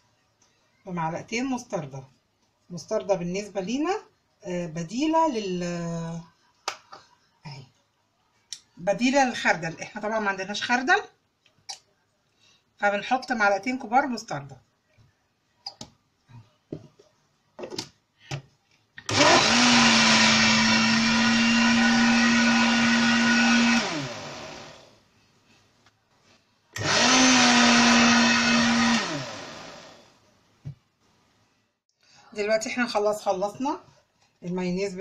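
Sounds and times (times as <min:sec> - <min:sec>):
blender motor running: 0:19.0 - 0:25.0, 0:26.8 - 0:30.2.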